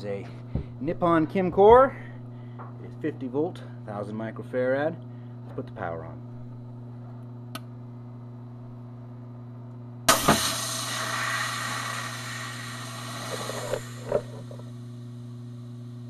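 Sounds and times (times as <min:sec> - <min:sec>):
capacitor bursting with a bang: 0:10.1 - 0:14.7
hiss of venting capacitor: 0:10.1 - 0:15.8.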